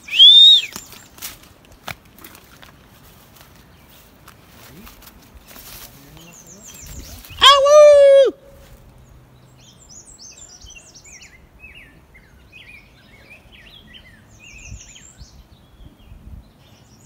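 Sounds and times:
songbirds chirping: 0:00.0 - 0:07.7, 0:08.4 - 0:17.0
man shouting: 0:07.4 - 0:08.5.

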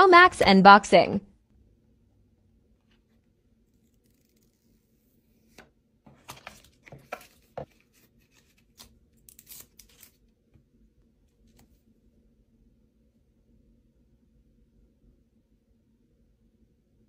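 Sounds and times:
paper packaging rustling: 0:06.1 - 0:10.2
sharp paper crackles: 0:06.2 - 0:10.2.

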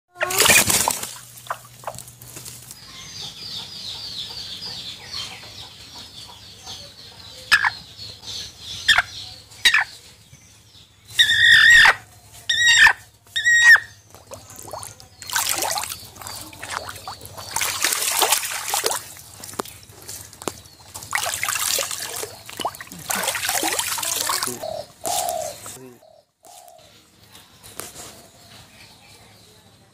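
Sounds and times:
hen flapping wings in water: 0:00.3 - 0:02.7, 0:14.1 - 0:25.3
water splash: 0:14.2 - 0:19.7, 0:20.9 - 0:24.6
hen calling in distress: 0:23.0 - 0:25.9.

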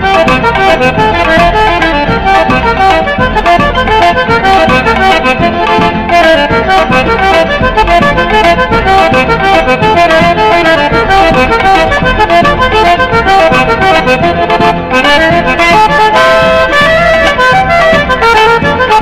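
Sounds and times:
accordion melody: 0:00.0 - 0:19.0
driving beat: 0:00.0 - 0:19.0.

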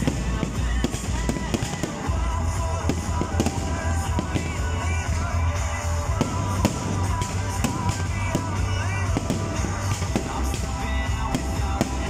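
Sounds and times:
fireworks bursting: 0:00.0 - 0:12.0
fireworks crackling: 0:00.0 - 0:12.0
loud music with heavy bass: 0:00.0 - 0:12.0.

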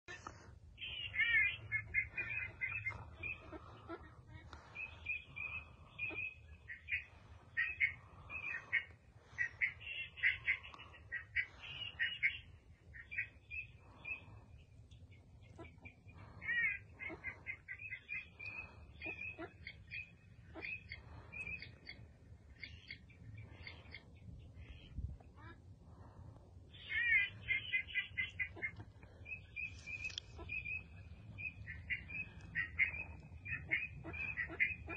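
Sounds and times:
ducks calling: 0:00.1 - 0:34.9
low steady rumble: 0:00.1 - 0:34.9.

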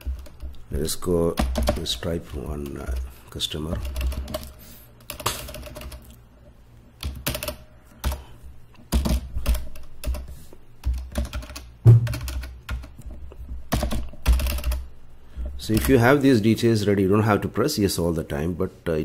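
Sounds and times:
heavy thump: 0:11.9 - 0:12.2.

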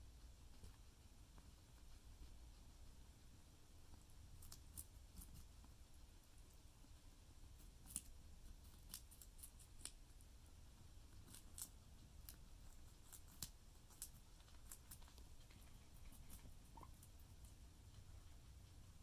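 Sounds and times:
guinea pigs crunching carrot: 0:00.0 - 0:19.0.

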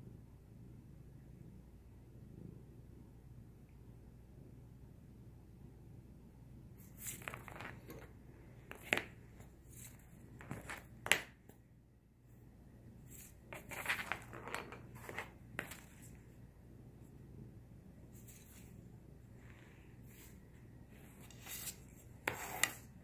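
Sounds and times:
pencil scraping and tapping on paper: 0:06.8 - 0:11.6, 0:13.1 - 0:16.2, 0:21.0 - 0:23.0
paper rustling: 0:13.1 - 0:16.2, 0:21.0 - 0:22.9.

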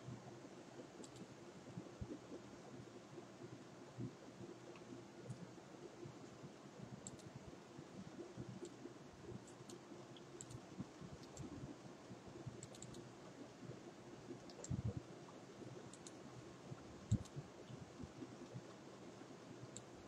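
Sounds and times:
mouse and keyboard clicks: 0:01.0 - 0:01.3, 0:07.0 - 0:07.3, 0:09.4 - 0:10.6, 0:11.2 - 0:11.5, 0:12.6 - 0:13.1, 0:14.4 - 0:14.8, 0:15.9 - 0:16.2, 0:17.1 - 0:17.4.

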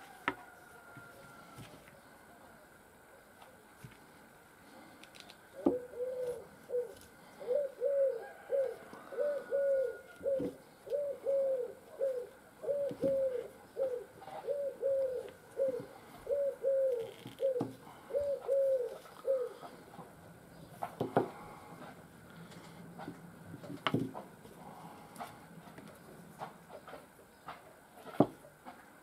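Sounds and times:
dove cooing: 0:05.5 - 0:22.0.

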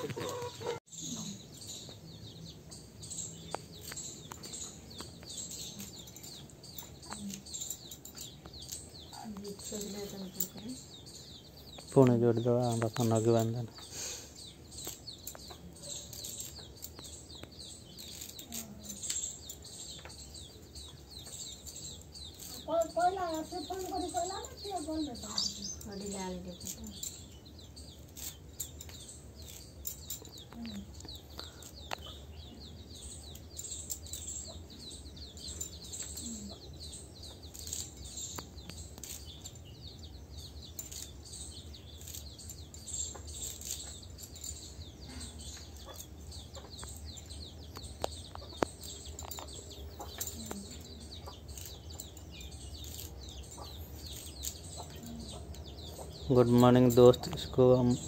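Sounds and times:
chickens clucking: 0:00.0 - 0:00.8
small birds chirping: 0:00.0 - 0:58.0.

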